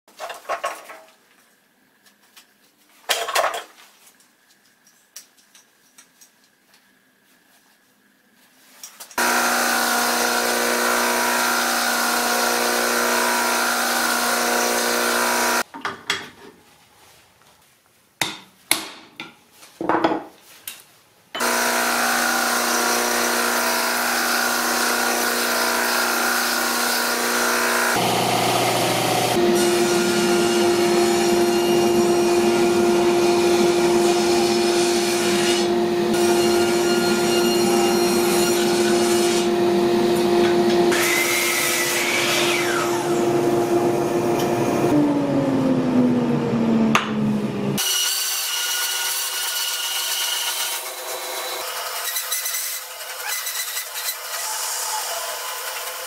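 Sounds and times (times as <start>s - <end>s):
belt grinder grinding metal: 9.2s - 15.6s, 21.4s - 44.6s.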